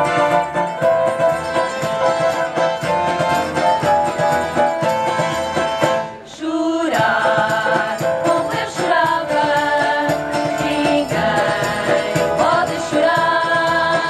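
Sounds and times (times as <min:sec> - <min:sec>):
instrumental accompaniment: 0:00.0 - 0:14.0
women singing together: 0:06.2 - 0:14.0
tambourine jingles: 0:07.0 - 0:14.0.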